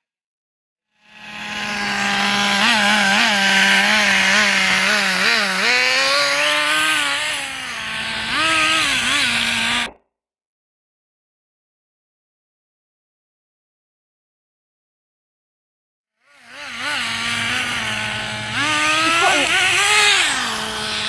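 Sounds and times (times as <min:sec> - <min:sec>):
small engine high buzz revving: 0:00.9 - 0:10.0, 0:16.2 - 0:21.0.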